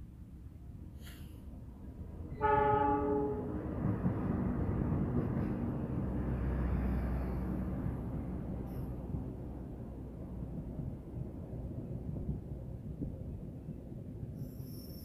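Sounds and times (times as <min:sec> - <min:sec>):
train rumbling past on rails: 0:00.1 - 0:15.0
locomotive horn blast: 0:02.4 - 0:03.6.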